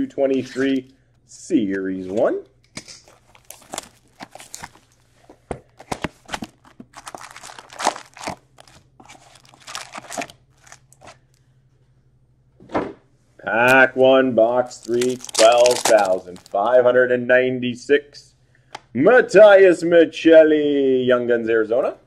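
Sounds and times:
plastic wrap and packs crinkling: 2.8 - 11.4, 14.6 - 16.6.

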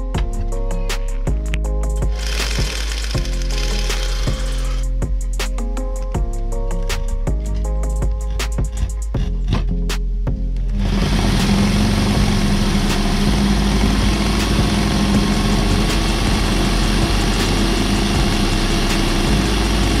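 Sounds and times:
electric drill humming: 2.1 - 5.0, 10.8 - 20.0
saw blade cutting wood: 2.1 - 5.0, 10.9 - 20.0.

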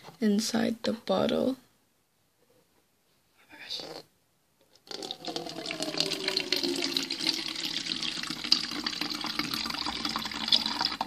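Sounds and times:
water pouring into plastic bottle: 4.8 - 11.0.

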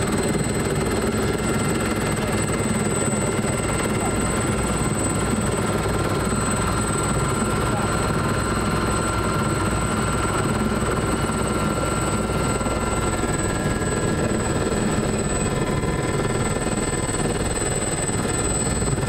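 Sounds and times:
helicopter turbine and rotors: 0.0 - 19.0
steady high whine: 0.0 - 19.0.

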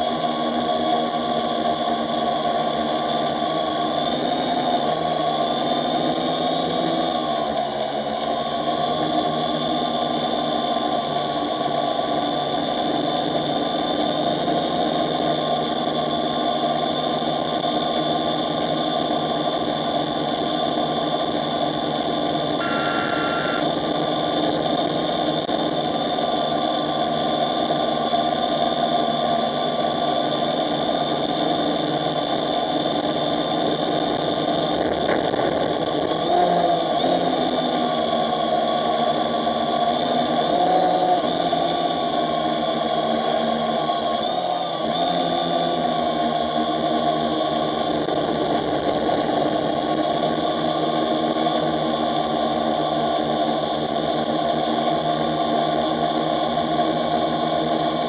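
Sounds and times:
drone propellers whining: 22.0 - 25.4, 33.3 - 47.7.

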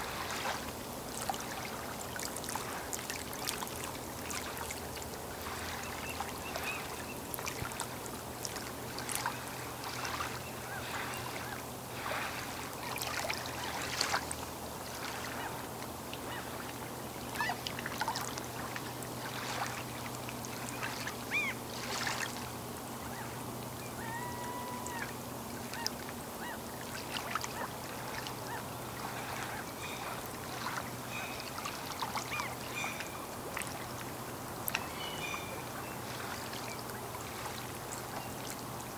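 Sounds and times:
small waves lapping: 0.0 - 38.9
waterfowl calling: 17.3 - 18.3, 20.8 - 22.0, 23.0 - 33.8, 34.7 - 36.8.

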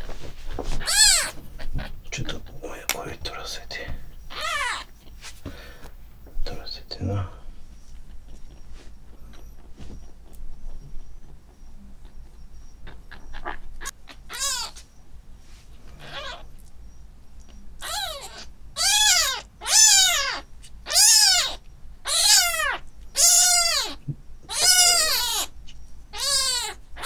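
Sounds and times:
kitten mewing: 4.3 - 4.9, 12.8 - 14.8, 16.0 - 16.4, 17.8 - 27.0.

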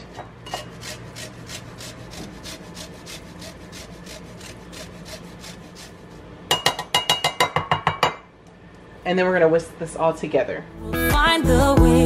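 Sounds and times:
lime rasped on a grater: 0.6 - 6.2.

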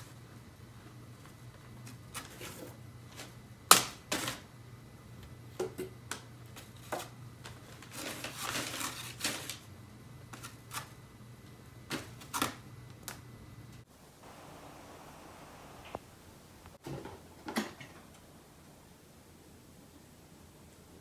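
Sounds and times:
paper crinkling under cat paws: 6.5 - 9.7.

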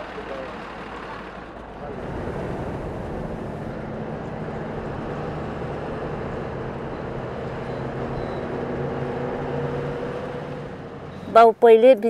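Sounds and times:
bus engine running: 0.0 - 12.0
road noise: 0.0 - 12.0.

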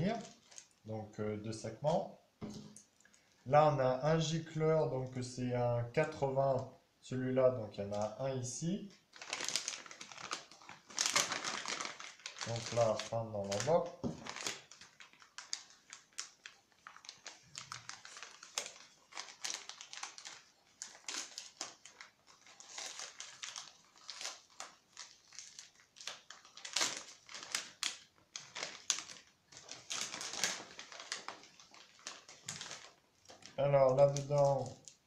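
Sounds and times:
envelopes and plastic rustling: 0.0 - 0.8, 8.9 - 35.0.

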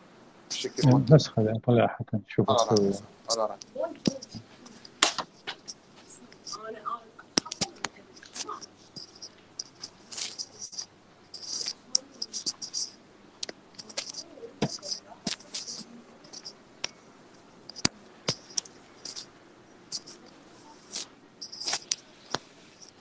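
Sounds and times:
scratchy rustles: 0.5 - 1.0, 2.6 - 6.8, 7.4 - 13.0, 13.8 - 16.6, 17.4 - 19.3, 19.9 - 23.0
sharp clicks: 17.7 - 19.3.

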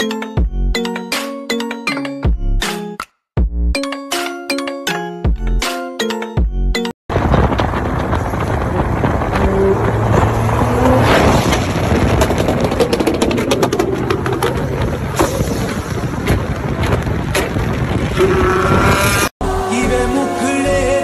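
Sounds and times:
fast car engines roaring: 7.1 - 15.2, 18.0 - 21.0
exhaust pops and crackles: 7.1 - 18.9.

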